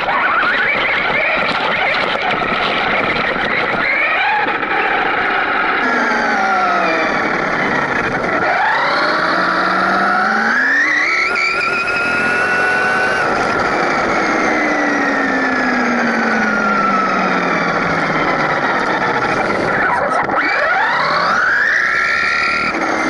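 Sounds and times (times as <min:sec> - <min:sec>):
tyres on rough asphalt: 0:00.0 - 0:23.0
electric motor whining: 0:05.8 - 0:23.0.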